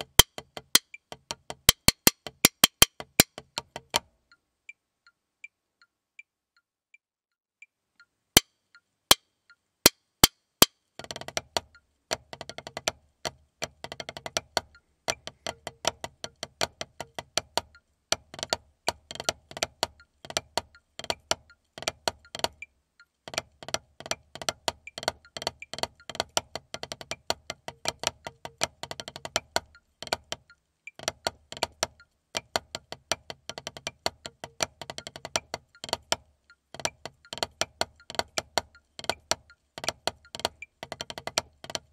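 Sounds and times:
sharp clicks: 0.0s - 4.0s
drumsticks on practice pad: 0.0s - 4.4s.

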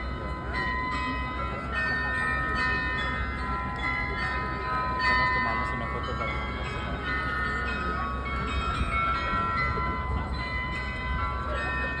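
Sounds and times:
bells ringing a tune: 0.0s - 12.0s.

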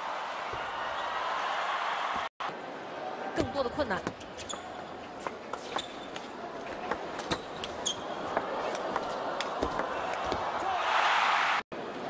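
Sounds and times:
crowd noise: 0.0s - 12.0s
shoe squeaks on court floor: 4.1s - 6.3s, 7.2s - 8.9s.

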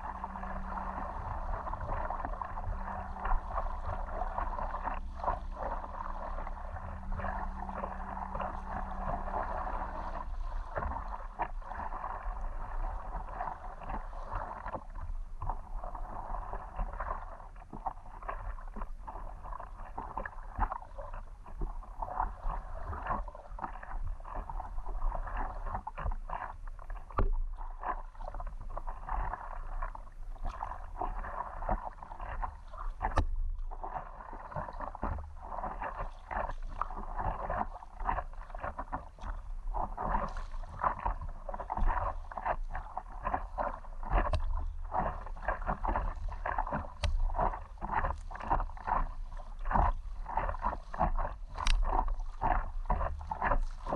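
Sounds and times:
wash of water: 0.0s - 20.9s
water splashing against paddleboard: 0.0s - 53.9s.

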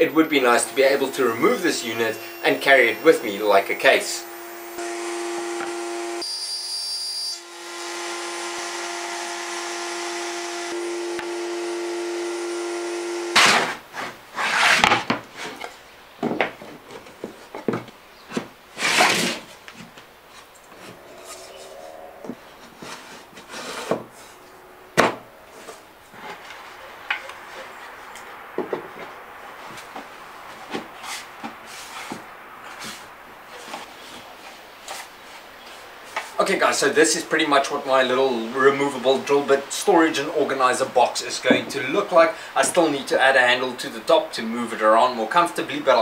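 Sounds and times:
machine hum: 0.0s - 13.8s, 20.1s - 28.6s.

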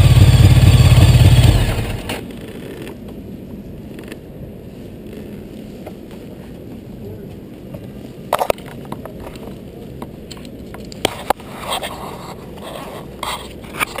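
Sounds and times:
motorcycle engine idling: 0.0s - 2.2s
sharp clicks and scraping: 10.2s - 14.0s.

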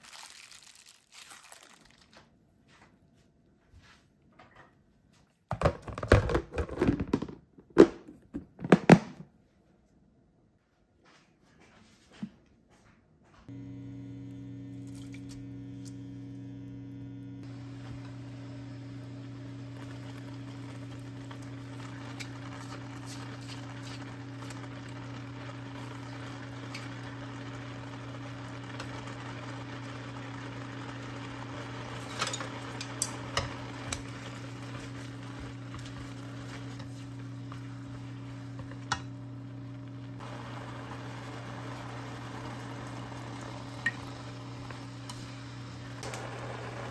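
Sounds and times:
low electrical hum: 12.4s - 46.9s
kelp sizzling in a frying pan: 13.5s - 46.9s.

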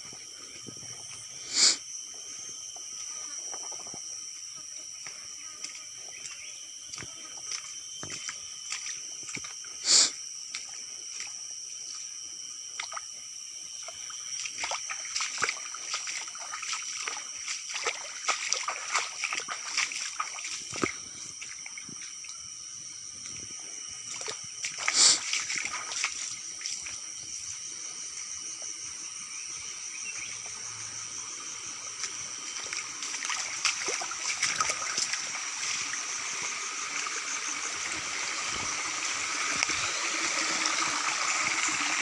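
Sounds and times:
footsteps splashing in stream: 5.6s - 9.6s, 12.8s - 13.1s, 13.8s - 22.4s, 24.0s - 27.1s, 31.8s - 41.8s.

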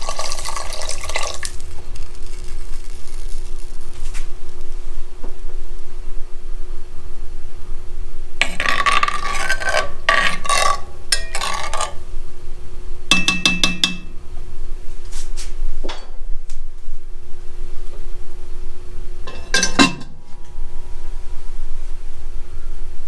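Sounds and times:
steady low hum: 0.0s - 23.0s
spoon scraping a pot: 8.4s - 12.0s, 19.3s - 20.2s
spoon clinking on pot: 10.1s - 12.0s, 13.1s - 14.1s, 19.3s - 20.2s.

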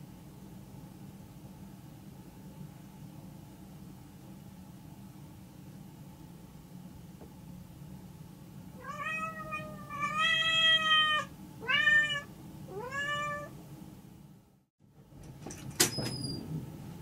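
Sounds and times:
cat meowing: 8.8s - 13.5s.

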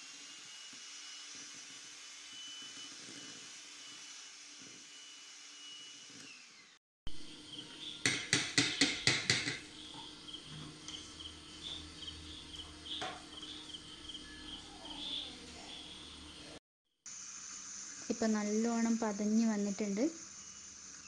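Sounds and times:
electric hand mixer whining: 0.0s - 16.6s
crickets chirping: 7.2s - 16.6s.

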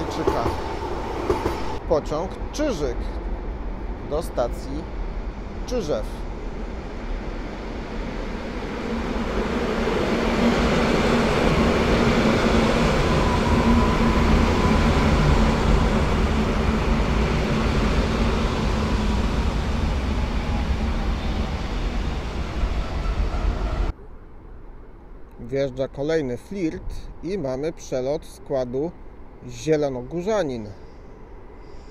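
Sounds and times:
train wheels rumbling on rail: 0.0s - 23.9s.

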